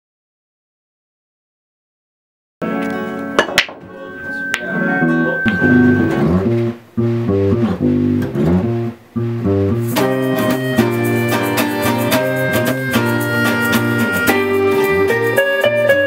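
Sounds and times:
band playing: 2.6s - 7.5s, 9.7s - 16.0s
plucked guitar riff: 2.6s - 16.0s.

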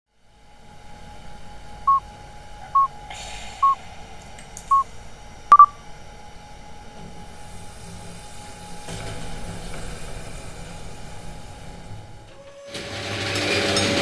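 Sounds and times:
faint steady hum: 0.2s - 12.4s
short electronic beeps: 2.7s - 2.9s, 5.5s - 5.8s.

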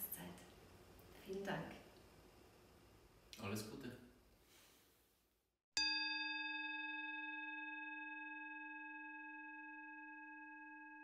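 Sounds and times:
singing bowl ringing: 5.8s - 11.0s.

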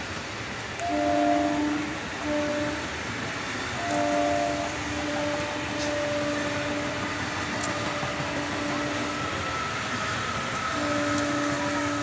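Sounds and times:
train wheels rumbling on rails: 0.0s - 12.0s
two-note hum: 3.8s - 9.2s, 10.8s - 12.0s.

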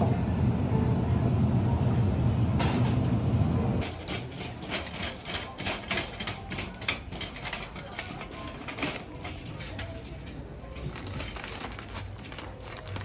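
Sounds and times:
shopping cart rolling rumble: 0.0s - 13.0s
wire basket and wheels rattling: 3.8s - 13.0s.

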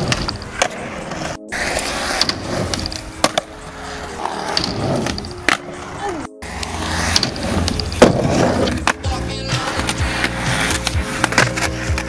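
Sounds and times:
skateboard wheels rolling on concrete: 0.0s - 12.0s
skateboard popping and landing clacks: 2.2s - 3.5s, 7.0s - 12.0s.

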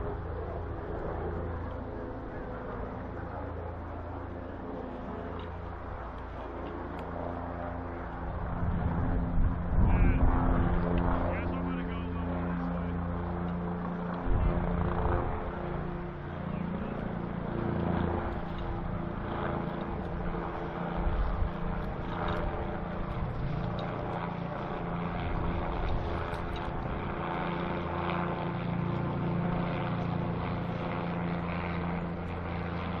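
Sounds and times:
aircraft engine drone: 0.0s - 33.0s
wind on microphone: 8.2s - 11.2s.

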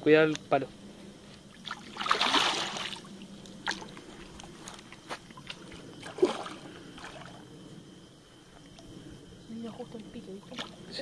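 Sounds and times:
water splashing: 1.5s - 4.1s, 5.3s - 7.5s.

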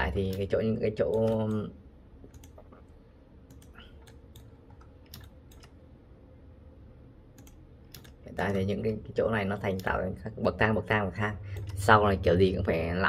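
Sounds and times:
faint steady low hum: 0.0s - 13.0s
mouse and keyboard clicks: 7.4s - 8.2s.

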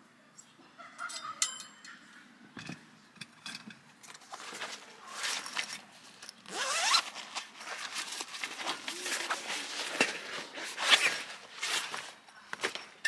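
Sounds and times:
zipper pulled: 6.5s - 7.2s
metal clinks and rattles: 11.0s - 13.0s.

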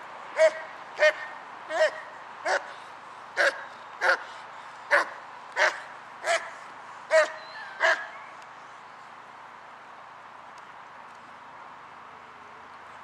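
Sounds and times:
dog barking: 4.9s - 6.5s, 7.1s - 8.1s.

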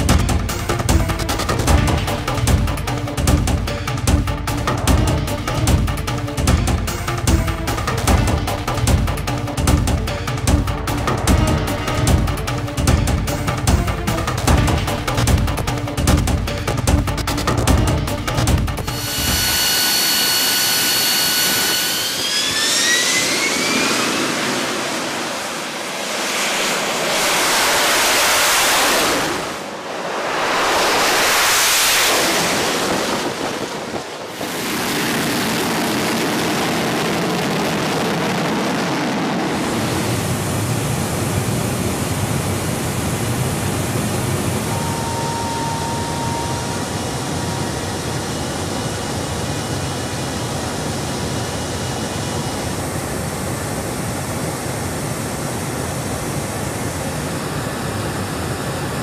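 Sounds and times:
jet thrust roar: 5.5s - 16.0s, 16.7s - 59.0s
jet engine whine rising: 7.0s - 14.5s, 18.3s - 59.0s
faint thin tone: 18.9s - 22.3s.

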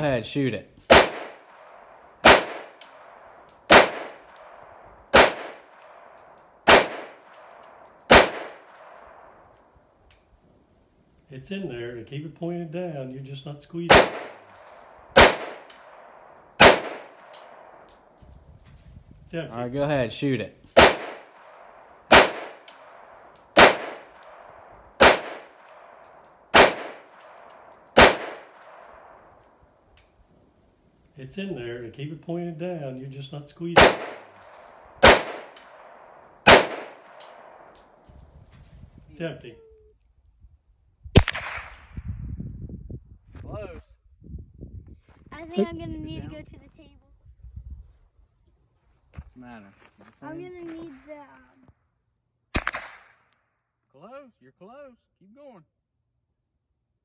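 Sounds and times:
echoing gunshots: 0.9s - 9.4s, 13.9s - 17.9s, 20.8s - 27.4s, 28.0s - 29.3s, 33.8s - 37.8s, 41.1s - 41.9s, 52.5s - 53.3s.

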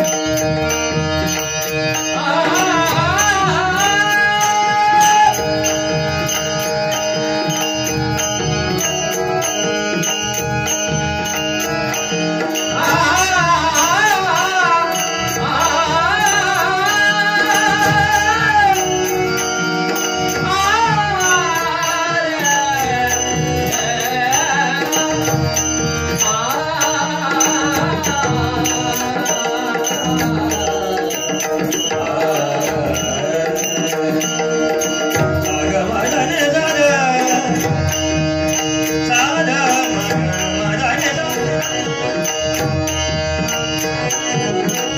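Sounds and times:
harmonium holding notes: 0.0s - 44.9s
man singing vocal runs: 2.1s - 6.6s, 12.7s - 42.6s.

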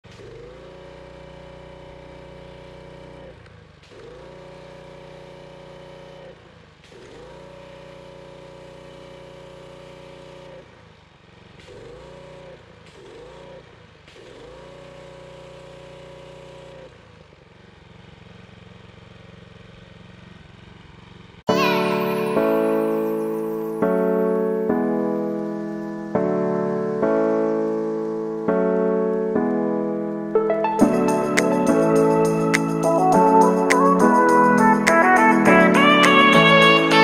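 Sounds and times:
pressure washer running: 0.1s - 22.0s
pressure washer spray whine: 21.6s - 37.0s.

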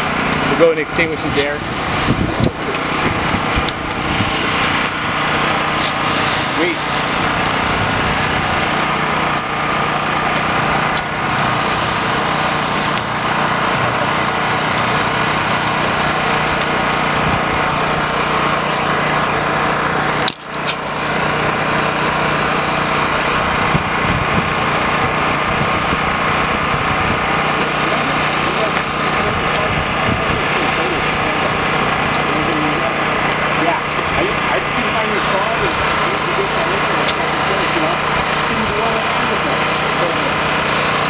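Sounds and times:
small engine running: 0.0s - 41.0s.

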